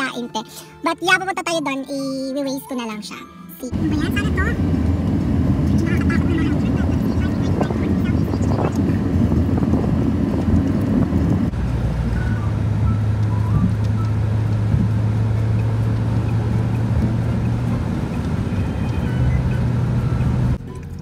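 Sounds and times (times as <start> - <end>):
car cabin steady low hum: 3.7 - 21.0
rough low road rumble: 3.7 - 21.0.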